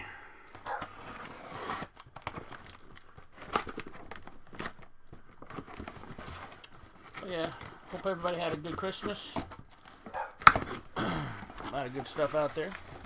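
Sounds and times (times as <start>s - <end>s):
tape and cardboard crackling: 0.4s - 13.0s
box cutter slitting tape: 0.7s - 2.8s.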